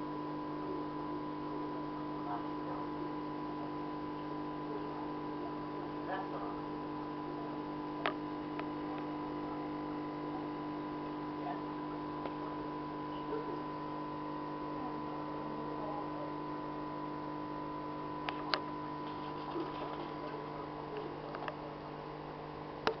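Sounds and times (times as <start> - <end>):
aquarium air pump humming: 0.0 - 23.0.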